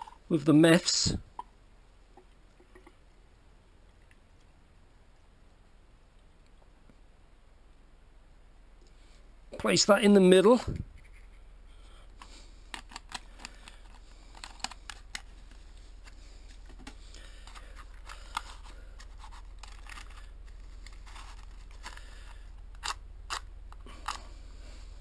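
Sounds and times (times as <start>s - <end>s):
small objects clicking and scraping: 12.1s - 24.4s.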